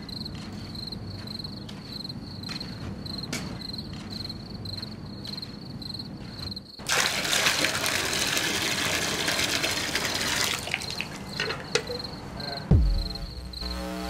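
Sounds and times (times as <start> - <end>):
crickets chirping: 0.0 - 6.9, 10.1 - 14.0
water splashing from bucket: 6.8 - 11.2.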